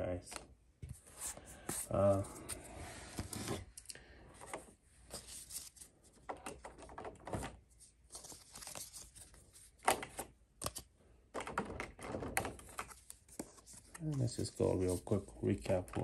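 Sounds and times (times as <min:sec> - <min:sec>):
cards sliding and snapping: 0:08.1 - 0:10.9.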